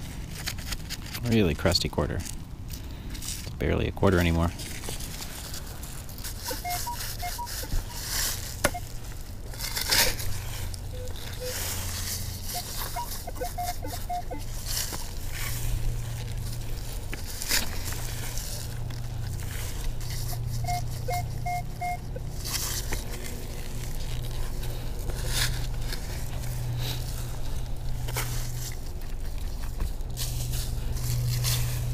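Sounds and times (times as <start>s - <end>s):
crunching scrapes: 0.0s - 31.9s
low steady rumble: 0.0s - 31.9s
metal detector short beeps: 6.5s - 9.0s, 10.9s - 15.6s, 20.2s - 22.3s.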